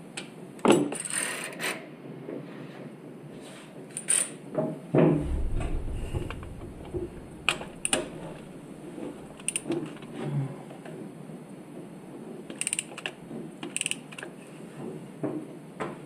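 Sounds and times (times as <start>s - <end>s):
heavy thump: 5.2s - 9.8s.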